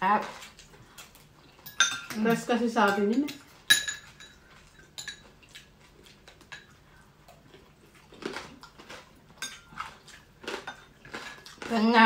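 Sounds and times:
cutlery clinking on bowls and plates: 0:01.6 - 0:05.4, 0:09.4 - 0:09.9.

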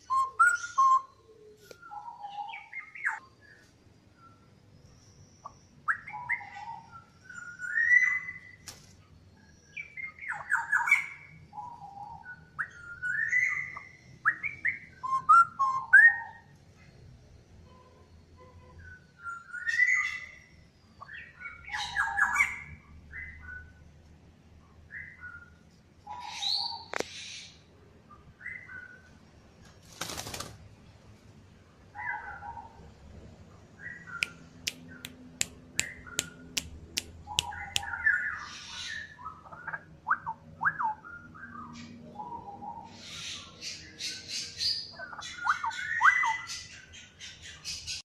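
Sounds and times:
bird whistled calls: 0:00.0 - 0:03.2, 0:05.4 - 0:08.6, 0:09.6 - 0:16.4, 0:19.2 - 0:20.5, 0:26.1 - 0:27.5, 0:37.3 - 0:48.0
rustle: 0:29.1 - 0:31.4
sharp clicks: 0:34.2 - 0:37.9.

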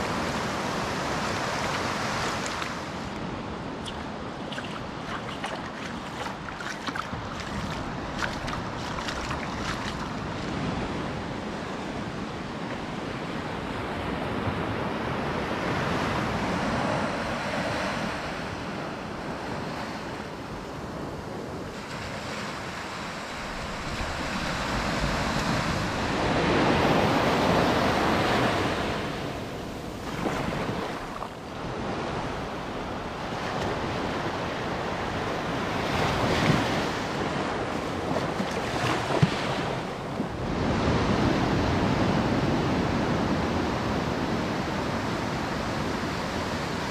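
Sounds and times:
small waves breaking on beach: 0:00.0 - 0:46.9
wind buffeting microphone: 0:02.6 - 0:12.2.

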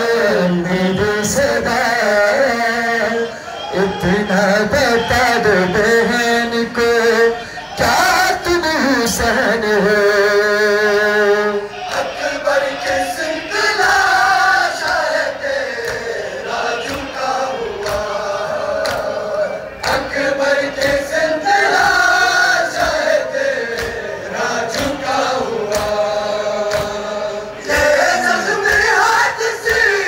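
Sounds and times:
men chanting in unison: 0:00.0 - 0:30.0
chest-beating slaps: 0:24.7 - 0:27.1.

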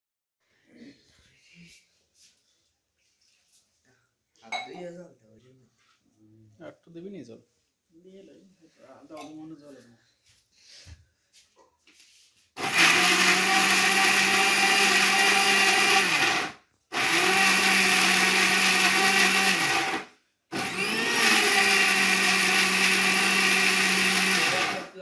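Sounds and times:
electric mixer grinder running: 0:12.6 - 0:25.0.

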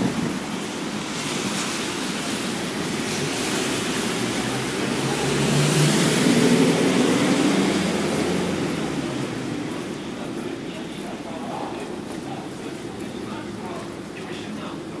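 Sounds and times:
tyre hiss on wet road: 0:00.0 - 0:11.2
truck engine hum: 0:00.0 - 0:15.0.

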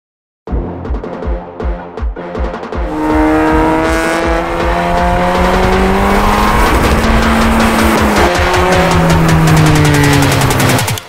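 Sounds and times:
car engine accelerating: 0:02.7 - 0:11.0.

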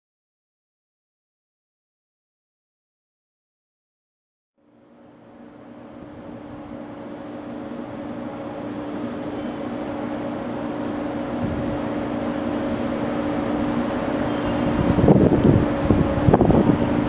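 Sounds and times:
electric train approaching: 0:04.6 - 0:17.0
steady low hum: 0:04.6 - 0:17.0.

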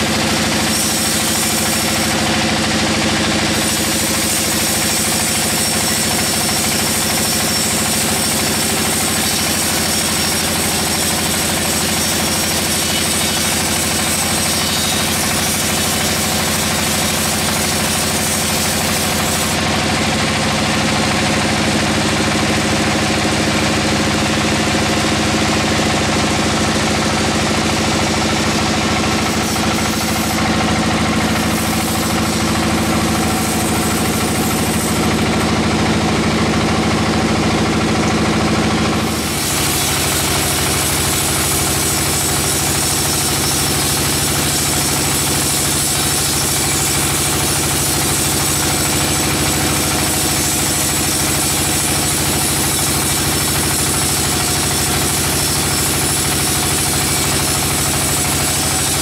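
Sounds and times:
band saw machinery droning: 0:00.0 - 0:59.0.

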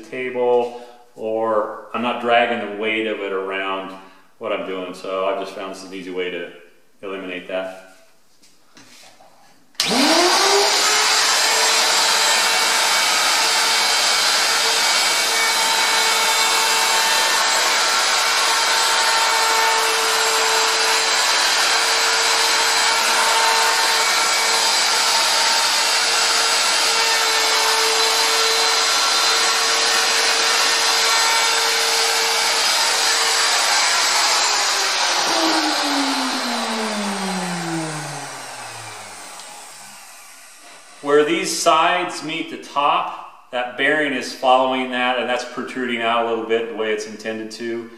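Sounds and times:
router whining: 0:09.8 - 0:41.4
router winding down: 0:09.8 - 0:41.4.

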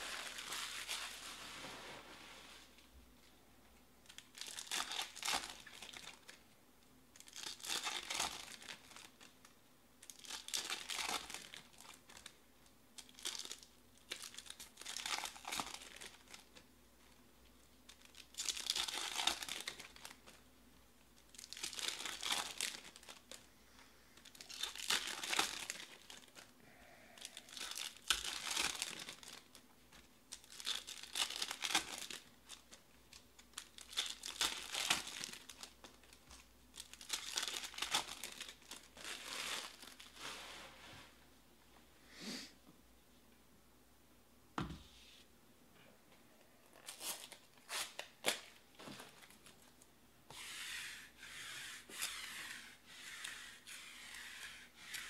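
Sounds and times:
foil wrappers crinkling and tearing: 0:00.0 - 0:01.6, 0:04.1 - 0:06.4, 0:07.2 - 0:09.3, 0:10.0 - 0:12.4, 0:13.0 - 0:16.6, 0:17.9 - 0:20.4, 0:21.3 - 0:23.5, 0:24.2 - 0:26.5, 0:27.1 - 0:40.2.

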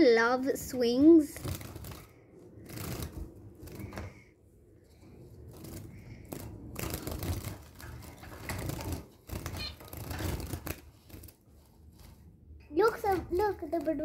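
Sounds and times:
bird wings fluttering: 0:01.2 - 0:12.3
wire birdcage rattling: 0:01.4 - 0:04.2, 0:04.8 - 0:13.8.

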